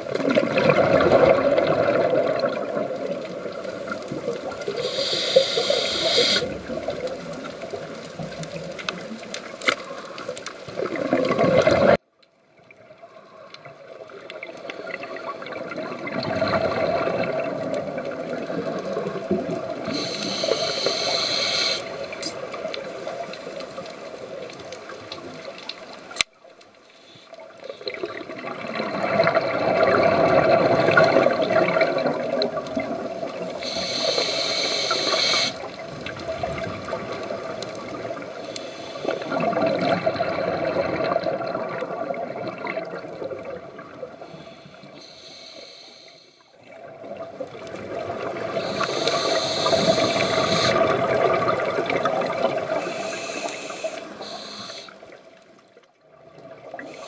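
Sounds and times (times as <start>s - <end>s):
bubbles gurgling: 0.0s - 9.3s, 10.7s - 12.0s, 14.0s - 25.6s, 27.8s - 38.4s, 39.0s - 44.2s, 46.7s - 53.1s
diver breathing through regulator: 4.7s - 6.6s, 19.9s - 22.4s, 33.6s - 35.7s, 38.4s - 39.5s, 44.2s - 46.5s, 48.5s - 50.9s, 52.8s - 55.0s
short high hiss: 4.7s - 6.6s, 19.9s - 22.4s, 33.6s - 35.7s, 48.6s - 50.8s, 52.8s - 55.0s.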